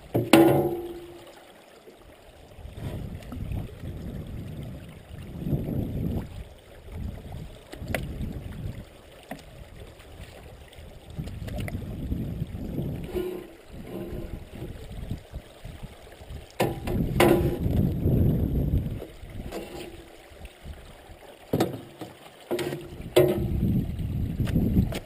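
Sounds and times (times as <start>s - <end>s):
grass rubbing along hull: 12.8s - 14.9s, 19.4s - 20.2s.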